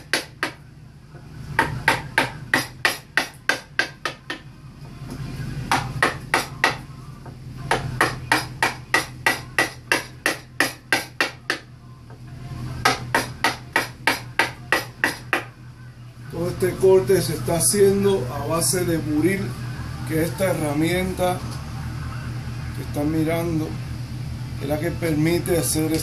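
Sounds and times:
mallet tapping a chisel into wood: 0.0s - 0.6s, 1.6s - 4.4s, 5.7s - 6.8s, 7.7s - 11.7s, 12.8s - 15.5s.

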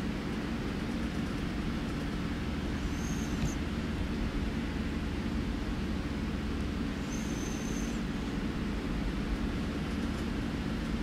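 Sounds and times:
thin high whistle: 2.9s - 3.6s, 7.0s - 8.0s.

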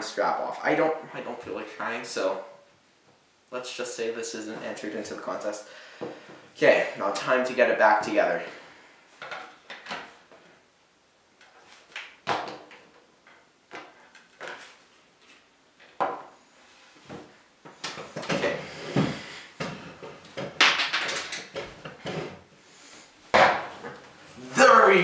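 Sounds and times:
plastic parts clicking and clattering: 20.4s - 22.0s.

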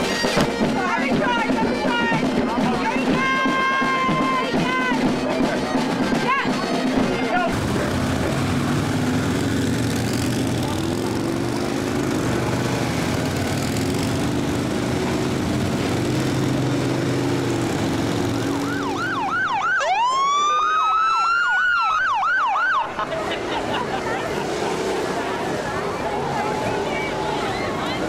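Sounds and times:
motorcycle engines rumbling: 0.0s - 28.0s
police sirens: 7.5s - 28.0s.

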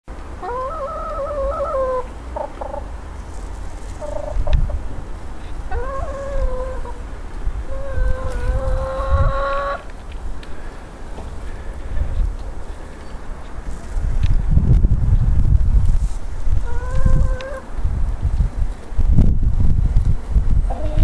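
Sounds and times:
chickens calling: 0.2s - 13.8s, 16.5s - 17.8s, 20.6s - 21.0s
chickens clucking: 0.4s - 3.0s, 3.8s - 10.0s, 16.5s - 17.7s, 20.6s - 21.0s.

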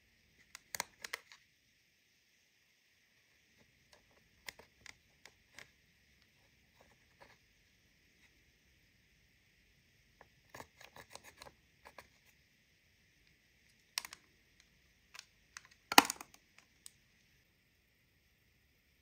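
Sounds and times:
spatula scraping plastic palette: 10.5s - 12.4s
palette clattering: 15.6s - 16.4s.

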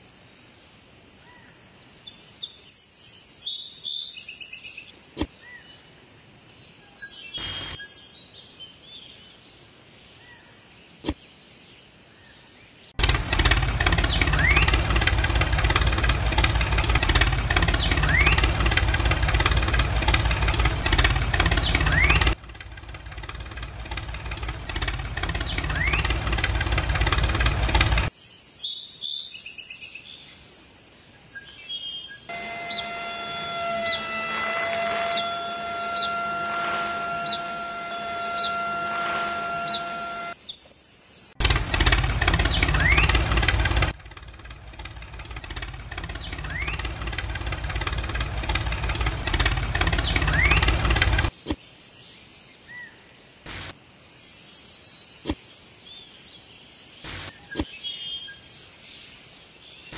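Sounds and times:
engine running: 7.4s - 7.8s, 13.0s - 28.1s, 32.3s - 40.4s, 41.4s - 51.5s, 53.5s - 53.7s, 57.0s - 57.4s
sharp clicks: 7.4s - 7.8s, 57.1s - 57.4s
birds chirping: 13.0s - 28.1s, 32.3s - 40.4s, 41.4s - 51.4s.

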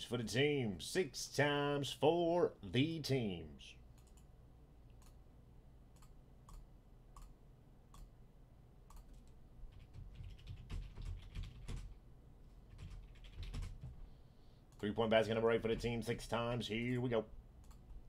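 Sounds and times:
faint computer mouse clicks: 4.0s - 4.3s, 5.9s - 8.1s
typing on computer keyboard: 8.9s - 12.0s, 12.7s - 14.0s.

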